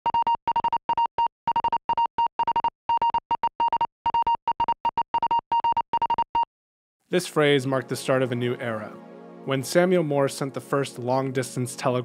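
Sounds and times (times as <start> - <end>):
high-pitched morse code beeps: 0.0 - 6.5.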